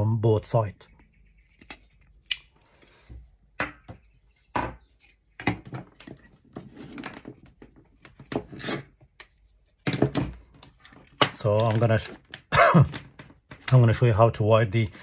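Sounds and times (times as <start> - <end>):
cable rustling: 5.0 - 13.8.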